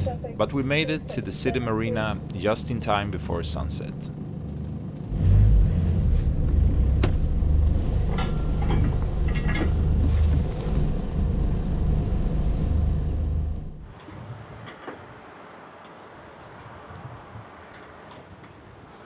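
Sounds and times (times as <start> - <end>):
boat engine idling: 0.0 - 5.1.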